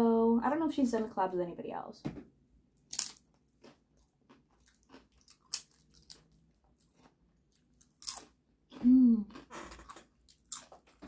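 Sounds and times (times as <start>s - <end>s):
chewing food: 2.9s - 11.0s.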